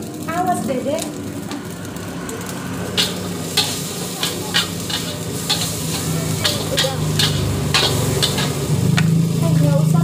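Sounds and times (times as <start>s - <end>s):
food sizzling in wok: 0.0s - 10.0s
metal spatula scraping wok: 2.9s - 8.9s.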